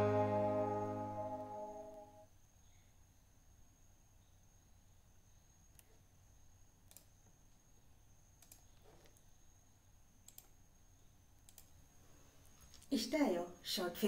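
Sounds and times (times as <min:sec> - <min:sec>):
faint steady high whine: 0:00.0 - 0:14.0
faint computer clicks: 0:06.8 - 0:07.2, 0:08.4 - 0:09.3, 0:10.2 - 0:10.6, 0:11.4 - 0:11.8.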